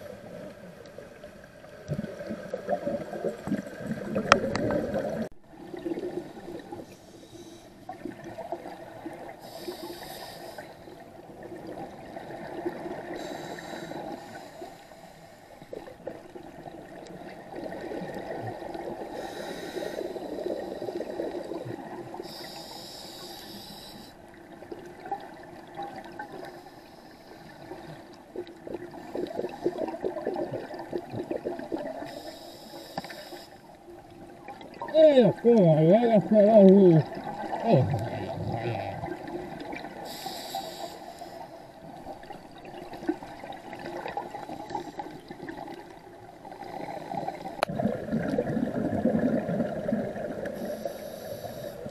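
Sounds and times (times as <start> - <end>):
regulator hissing inhale: 6.8 - 7.8, 9.4 - 10.9, 13.1 - 15.6, 19.1 - 21.1, 22.2 - 24.2, 26.4 - 27.7, 32.0 - 33.7, 40.0 - 41.8, 50.6 - 51.9.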